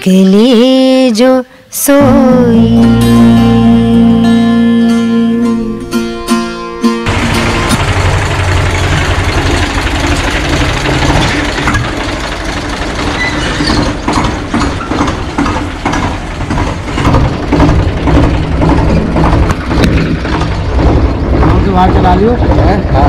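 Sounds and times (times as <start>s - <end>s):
tractor diesel engine running: 5.8s - 23.0s.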